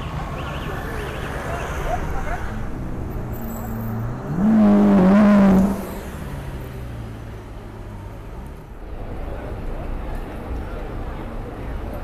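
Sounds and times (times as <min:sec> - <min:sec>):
car engine revving: 0:01.4 - 0:08.6.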